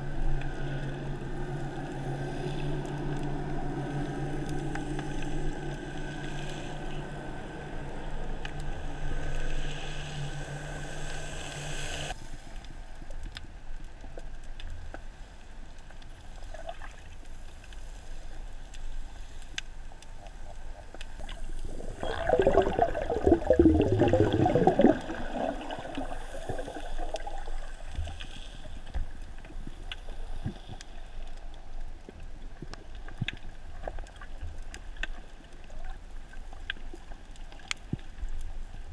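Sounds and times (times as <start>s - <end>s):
boat motor drone underwater: 0.0s - 38.9s
faint water noise: 0.0s - 38.9s
bubbling and gurgling: 21.2s - 28.3s.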